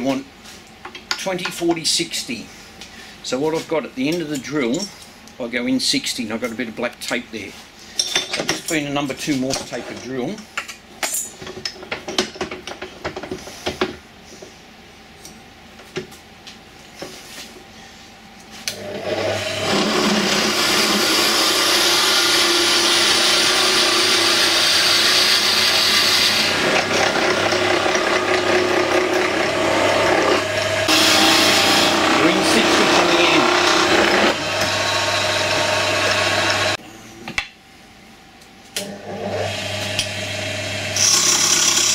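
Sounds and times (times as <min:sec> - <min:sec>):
wood lathe running: 0:18.8 - 0:36.8, 0:39.0 - 0:41.9.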